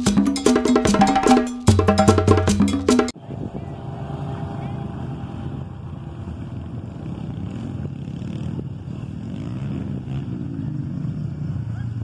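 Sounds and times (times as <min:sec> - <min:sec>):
dirt bike engines revving: 0:03.2 - 0:12.0.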